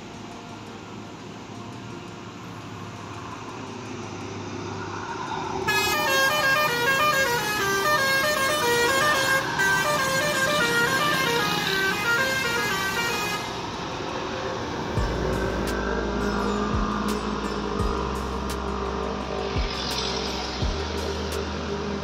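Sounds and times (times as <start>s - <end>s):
bus engine: 0.0s - 22.0s
multi-tone horn melody: 5.7s - 14.0s.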